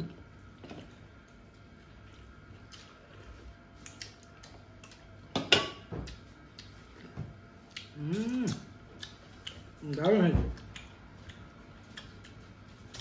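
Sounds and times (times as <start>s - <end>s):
person humming: 8.0s - 8.7s.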